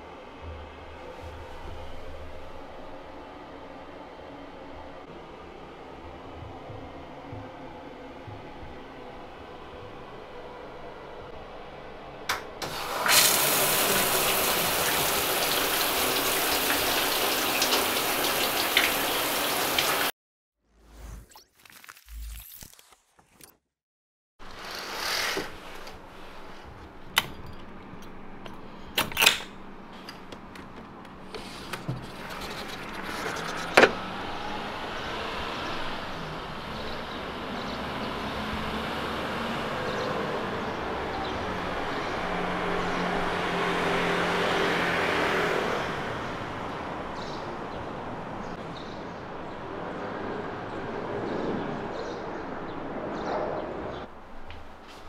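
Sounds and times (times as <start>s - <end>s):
street ambience: 25.4s - 55.0s
vehicle passing: 32.1s - 55.0s.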